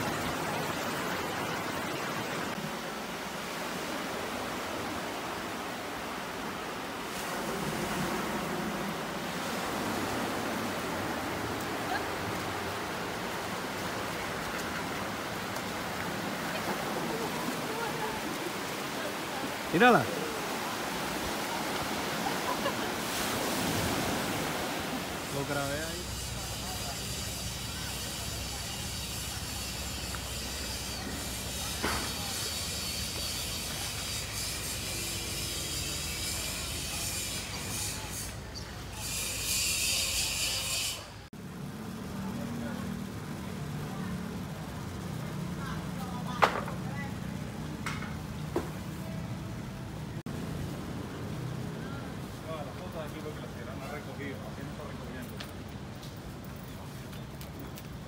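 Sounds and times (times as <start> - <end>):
waves washing up sandy beach: 0.0 - 32.8.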